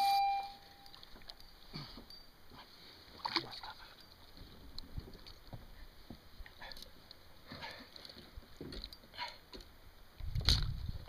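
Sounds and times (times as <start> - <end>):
water splashing against a kayak: 2.6 - 5.5.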